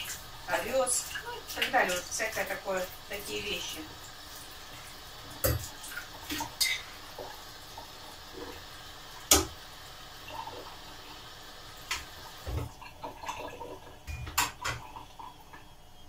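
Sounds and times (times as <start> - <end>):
tap running into sink: 9.3 - 9.6.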